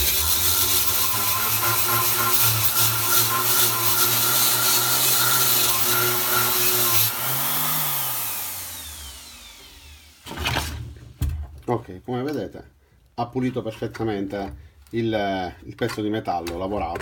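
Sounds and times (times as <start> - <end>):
die grinder motor hum: 0.0 - 10.6
motor winding down whine: 7.1 - 10.2.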